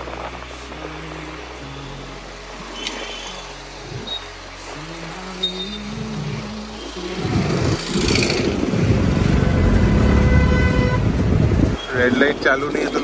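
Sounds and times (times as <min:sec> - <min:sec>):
background music: 0:00.0 - 0:13.0
road noise: 0:00.0 - 0:13.0
wind buffeting microphone: 0:07.2 - 0:12.7.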